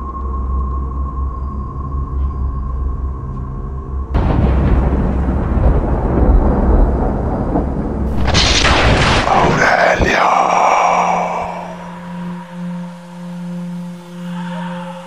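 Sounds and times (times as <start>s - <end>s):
loud boom-like rumble: 4.2s - 11.8s
hissing rush: 8.1s - 15.0s.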